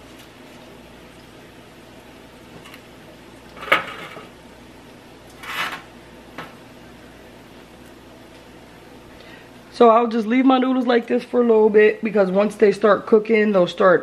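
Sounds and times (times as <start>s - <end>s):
faint steady hum: 0.0s - 14.0s
scraping rustle at pot: 5.4s - 5.9s.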